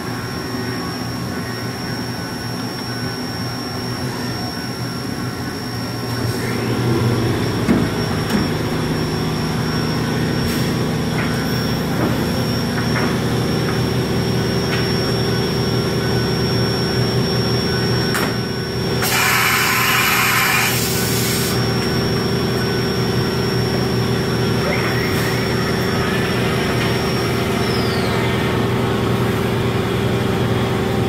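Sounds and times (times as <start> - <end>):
milling machine whining: 0.0 - 31.0
loud hiss: 19.0 - 21.7.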